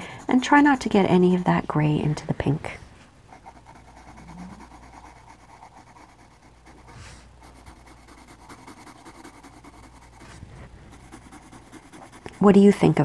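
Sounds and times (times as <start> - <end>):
pencil scratching on paper: 0.0 - 2.6, 3.3 - 13.0.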